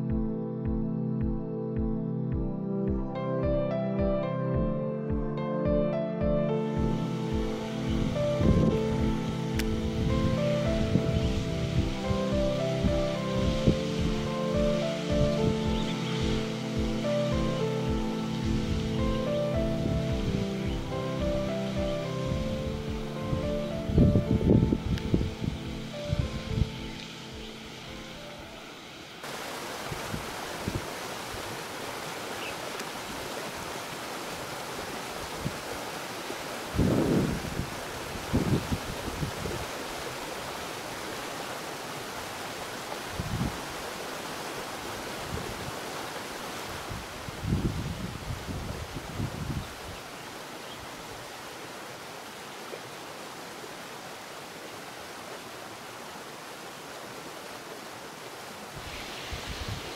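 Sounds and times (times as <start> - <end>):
background music: 0.0 - 29.0
waterfall rushing: 6.2 - 59.9
wind thumps on microphone: 6.8 - 17.0, 22.3 - 26.8, 29.8 - 31.4, 36.7 - 39.8, 43.1 - 43.7, 46.7 - 49.8, 58.8 - 59.9.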